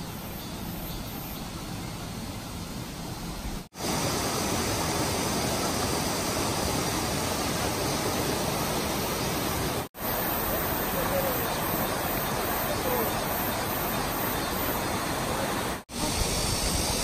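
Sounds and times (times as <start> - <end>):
stream rushing over rocks: 3.7 - 17.0.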